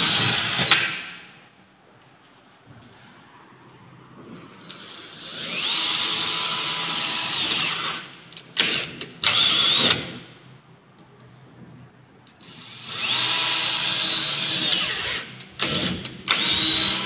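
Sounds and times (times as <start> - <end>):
cordless drill drilling into metal: 0.0 - 1.1, 12.4 - 17.0.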